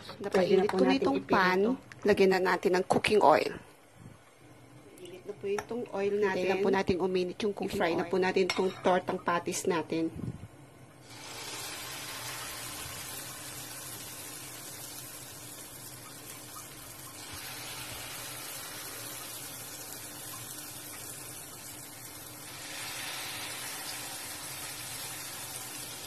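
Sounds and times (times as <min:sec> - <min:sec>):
oil sizzling in a pan: 0:11.0 - 0:26.0.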